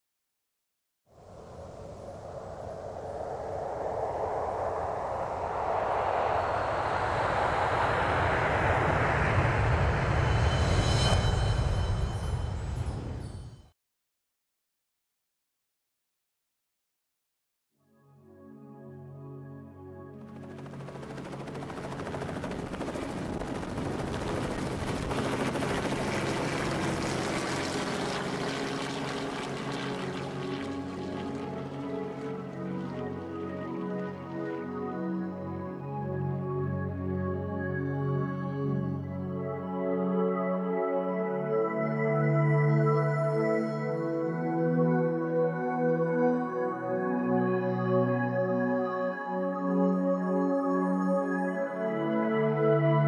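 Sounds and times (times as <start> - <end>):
rushing wind-like swell: 1.2 - 13.4
helicopter flying low: 1.4 - 11.7, 20.0 - 37.3
deep rumble: 1.9 - 13.2.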